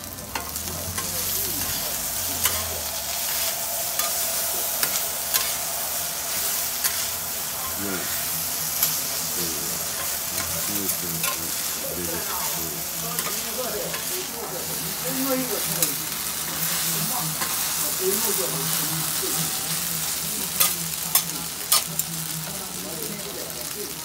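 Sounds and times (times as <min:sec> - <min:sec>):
noodles sizzling on a griddle: 0:00.0 - 0:24.0
metal spatulas scraping: 0:02.4 - 0:08.2.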